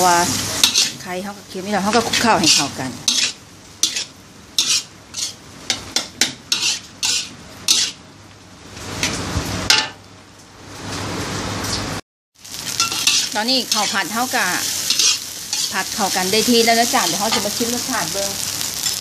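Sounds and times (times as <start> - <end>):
rice sizzling: 0.0 - 10.0, 12.4 - 19.0
metal spatula scraping a wok: 0.3 - 1.1, 1.9 - 8.0, 12.7 - 17.6.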